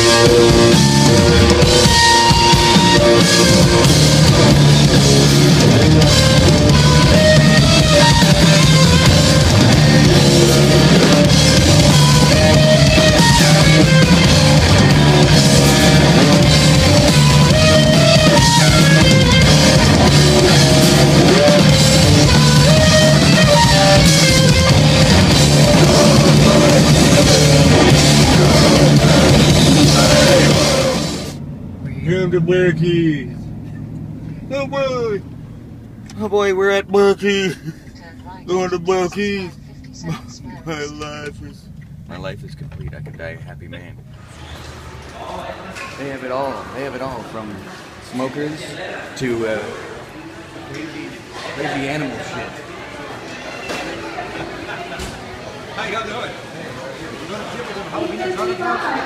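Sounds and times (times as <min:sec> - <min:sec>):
drum kit: 0:00.0 - 0:31.4
electric guitar: 0:00.0 - 0:31.4
bass guitar: 0:00.0 - 0:46.9.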